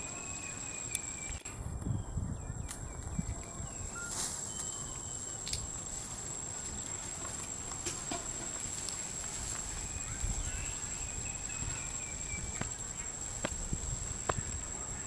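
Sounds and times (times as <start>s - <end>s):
high-pitched insect drone: 0.0s - 15.0s
faint clicks: 5.4s - 5.6s.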